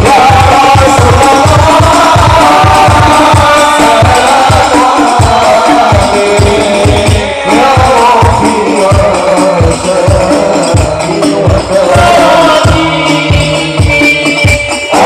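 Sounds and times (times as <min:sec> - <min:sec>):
devotional song singing: 0:00.0 - 0:15.0
frame drums beating: 0:00.0 - 0:15.0.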